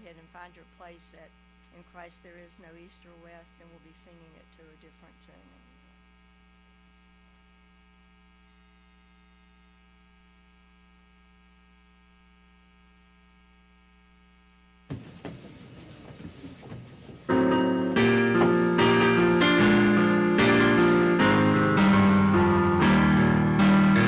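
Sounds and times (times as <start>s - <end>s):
faint electrical hum: 0.0s - 24.0s
knock: 14.9s - 17.2s
rustling: 14.9s - 19.0s
piano playing hymn tune: 17.1s - 24.0s.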